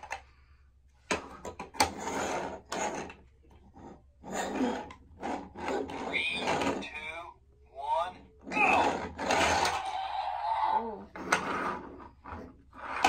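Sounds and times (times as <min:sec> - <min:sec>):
toy car wheels rolling on wood: 0:01.7 - 0:06.9, 0:08.4 - 0:13.0.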